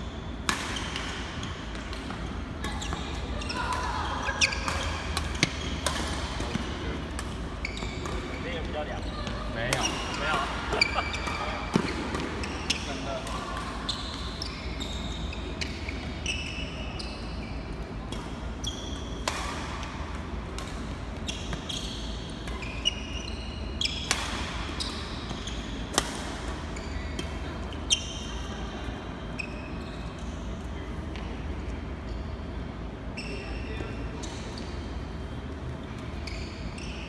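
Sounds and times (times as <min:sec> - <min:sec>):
shoes squeaking on court floor: 0:00.0 - 0:19.2, 0:21.0 - 0:28.6, 0:29.2 - 0:37.0
rackets striking shuttlecock: 0:03.7 - 0:08.3.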